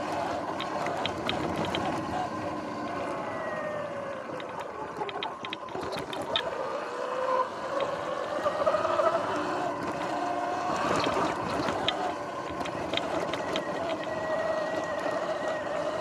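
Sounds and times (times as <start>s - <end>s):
clicks and rattles over bumps: 0.0s - 2.2s, 4.3s - 6.6s, 7.7s - 8.1s, 9.7s - 16.0s
electric motor whining: 5.6s - 16.0s.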